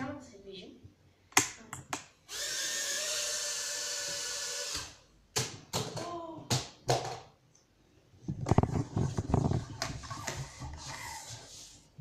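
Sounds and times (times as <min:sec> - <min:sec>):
toy drone motors whirring: 0:02.3 - 0:05.0.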